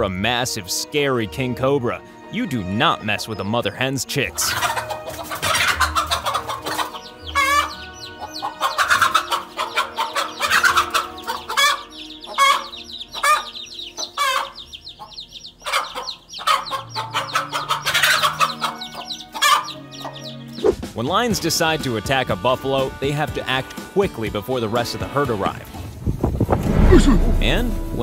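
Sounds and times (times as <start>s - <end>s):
chicks peeping: 3.0s - 20.9s
hen clucking and squawking: 4.3s - 20.8s.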